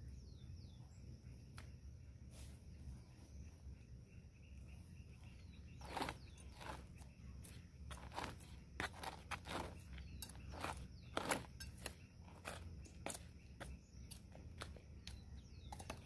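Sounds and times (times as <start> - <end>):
trowel scraping soil: 5.7 - 16.0.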